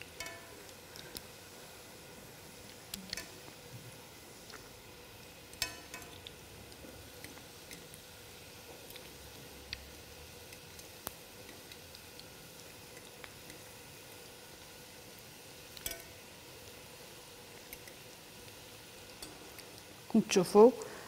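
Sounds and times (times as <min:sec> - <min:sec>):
meatballs frying in a pan: 0:00.0 - 0:21.0
utensil clicking against pan: 0:05.6 - 0:06.3, 0:15.8 - 0:16.1.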